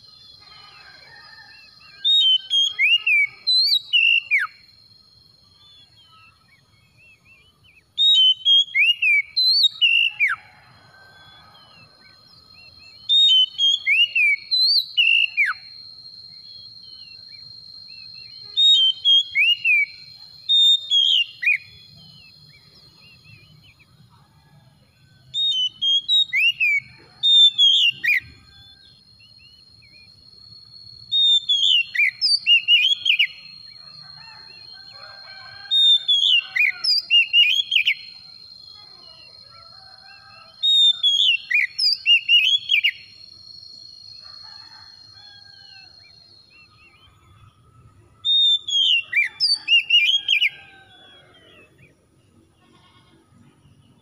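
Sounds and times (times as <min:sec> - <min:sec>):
bird singing whistled phrases: 0:02.1 - 0:04.6, 0:05.7 - 0:10.4, 0:12.9 - 0:15.7, 0:16.3 - 0:21.8, 0:25.4 - 0:28.8, 0:31.1 - 0:33.4
faint steady high tone: 0:37.1 - 0:40.6.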